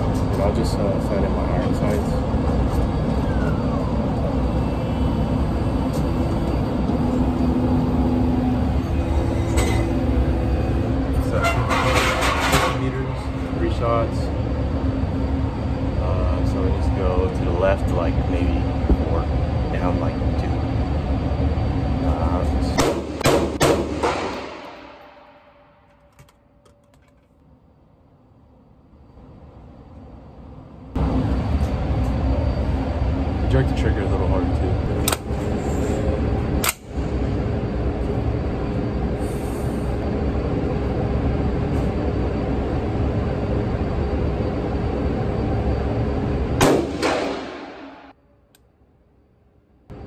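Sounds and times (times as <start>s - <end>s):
ventilation rumble: 0.0s - 26.6s, 27.5s - 48.6s
target carrier motor running: 0.0s - 26.9s.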